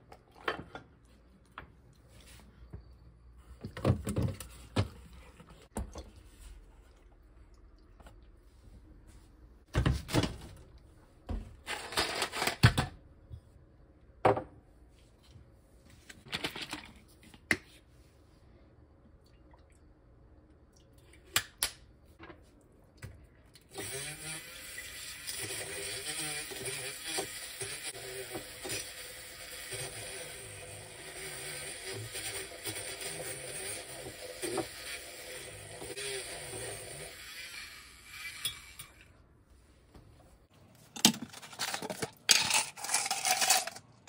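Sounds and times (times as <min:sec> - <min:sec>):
milk frother whirring: 0:23.8 - 0:39.1
bottles and glass jar clattering: 0:41.0 - 0:43.9.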